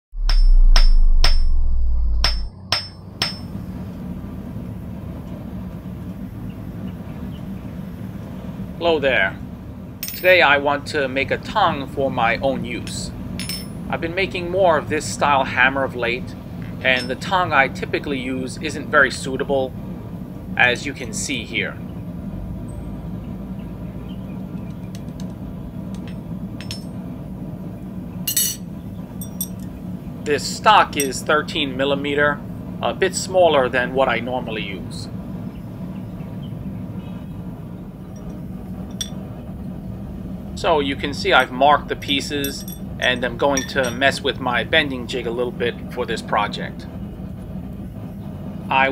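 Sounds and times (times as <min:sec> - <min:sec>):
loud deep drone: 0:00.0 - 0:06.3
hammer blows on an anvil: 0:00.2 - 0:01.6, 0:02.2 - 0:03.6, 0:13.4 - 0:13.8, 0:16.9 - 0:17.3, 0:26.0 - 0:27.0, 0:28.3 - 0:29.7, 0:31.0 - 0:31.3, 0:41.3 - 0:44.2
low background hum: 0:00.2 - 0:48.9.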